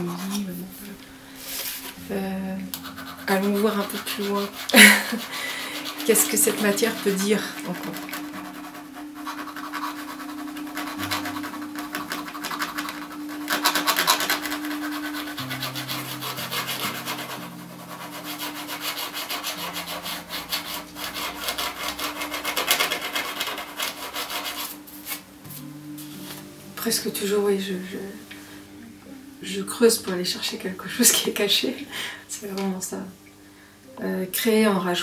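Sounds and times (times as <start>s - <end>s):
steel tool scraping metal plate: 2.8s - 25.2s.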